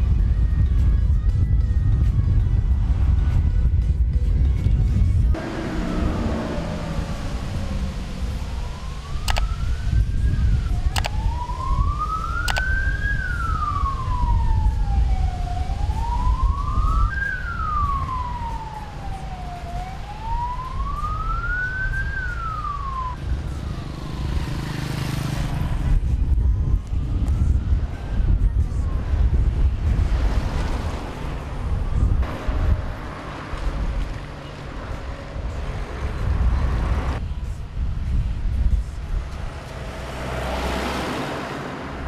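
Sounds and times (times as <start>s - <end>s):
emergency vehicle siren wailing: 5.3s - 25.9s, 26.8s - 30.0s
sharp clicks: 9.2s - 9.5s, 10.9s - 11.2s, 12.4s - 12.7s
steady low rumble: 25.7s - 30.5s.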